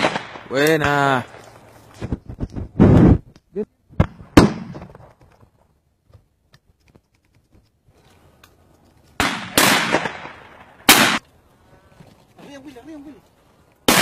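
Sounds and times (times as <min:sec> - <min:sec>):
shotgun shots with echo: 0:00.0 - 0:01.0, 0:04.1 - 0:04.9, 0:09.2 - 0:11.2.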